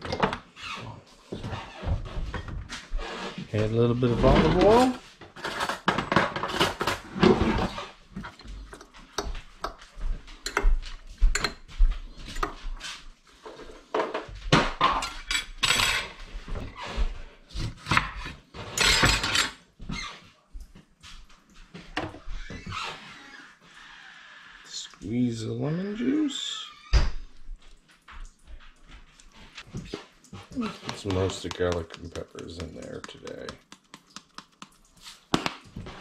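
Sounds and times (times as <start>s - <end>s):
dishes and utensils clinking: 8.2s - 12.7s, 14.8s - 16.3s, 17.9s - 19.6s.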